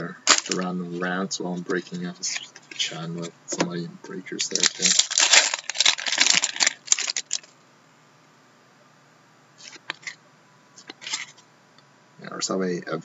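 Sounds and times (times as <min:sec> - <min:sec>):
wrapper being torn and crinkled: 0:00.3 - 0:00.7, 0:04.5 - 0:07.5, 0:11.0 - 0:11.3.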